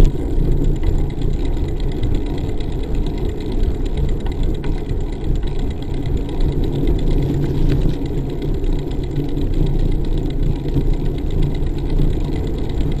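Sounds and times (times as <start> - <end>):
faint ticks: 0.0 - 13.0
wind buffeting microphone: 0.0 - 13.0
tyre rumble on asphalt: 6.4 - 8.4.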